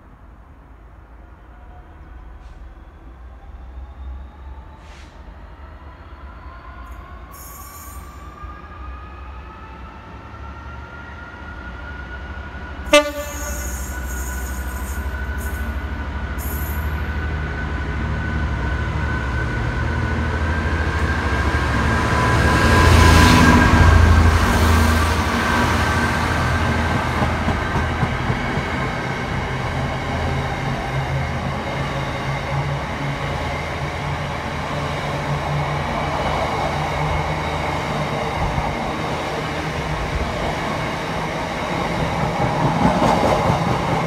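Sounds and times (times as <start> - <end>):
train passing: 0.0 - 44.0
train horn toot: 12.8 - 15.0.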